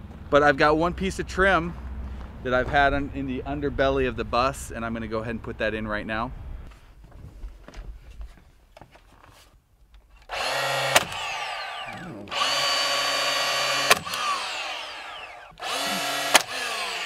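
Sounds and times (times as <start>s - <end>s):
cordless nailer motor whining: 10.2s - 17.0s
nailer firing crack: 10.3s - 17.0s.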